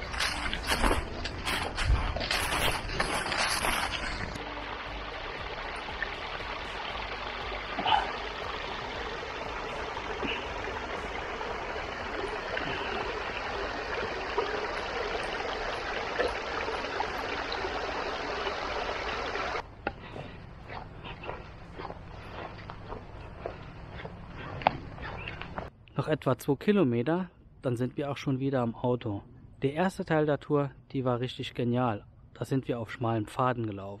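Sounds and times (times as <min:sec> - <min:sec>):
stream trickling over moss: 0:00.0 - 0:19.6.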